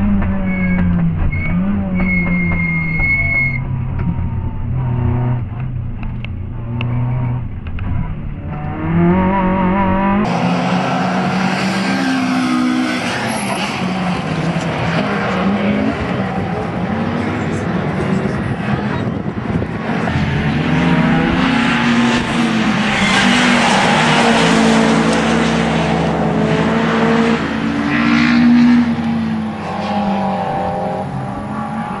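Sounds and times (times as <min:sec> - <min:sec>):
car engine revving: 0:00.0 - 0:32.0
tyre squeal: 0:00.2 - 0:04.5.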